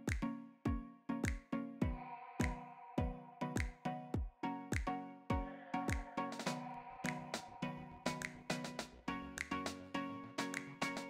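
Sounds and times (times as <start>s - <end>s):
kick drum beat: 0.1s - 6.1s.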